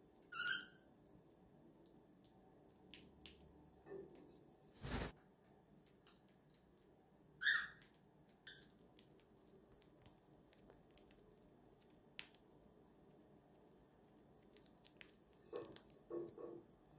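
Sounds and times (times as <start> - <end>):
bird squeak: 0.3 - 0.8, 7.4 - 7.8.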